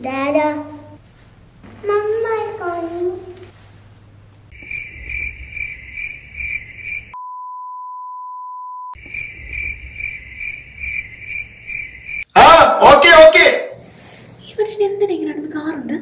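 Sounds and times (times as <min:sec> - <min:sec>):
crickets chirping: 0:04.5 - 0:07.2, 0:08.9 - 0:12.3
steady pure beep: 0:04.6 - 0:12.2.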